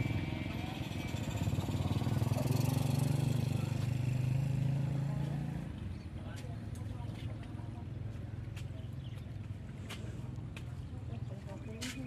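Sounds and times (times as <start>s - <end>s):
motorcycle engine passing by: 0.0s - 6.0s.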